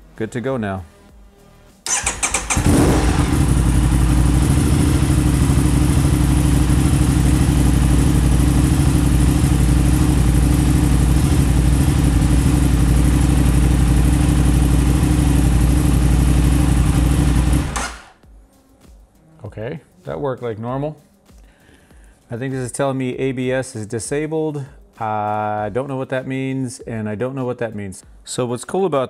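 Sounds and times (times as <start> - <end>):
motorcycle starter cranking: 1.9 - 3.7, 17.5 - 18.1
motorcycle engine idling: 1.9 - 18.1.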